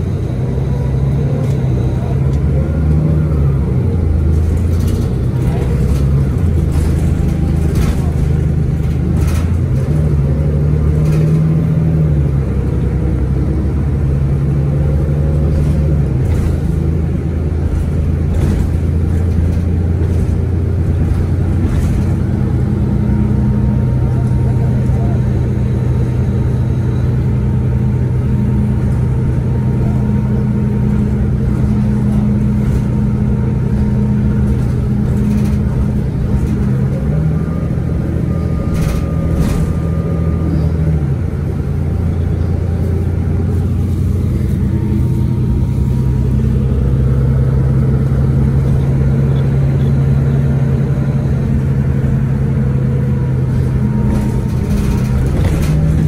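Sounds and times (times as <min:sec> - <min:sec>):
bus diesel engine running: 0:00.0 - 0:56.0.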